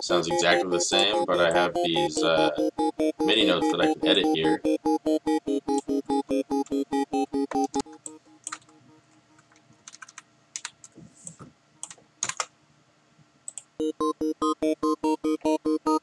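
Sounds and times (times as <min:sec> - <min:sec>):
synth arpeggio: 0:00.0 - 0:08.9, 0:13.8 - 0:16.0
keyboard and mouse clicks: 0:06.6 - 0:08.8, 0:09.4 - 0:12.5, 0:13.5 - 0:13.7.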